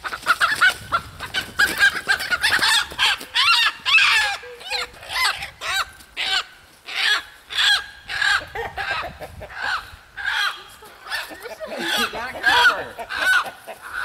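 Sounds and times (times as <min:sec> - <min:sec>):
chickens calling: 0:00.0 - 0:14.0.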